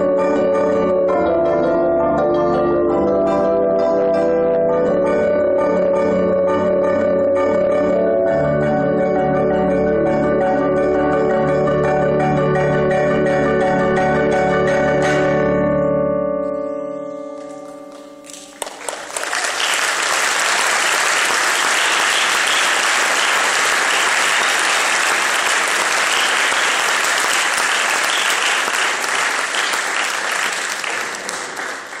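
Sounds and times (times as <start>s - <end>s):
audience applauding: 17.4s - 32.0s.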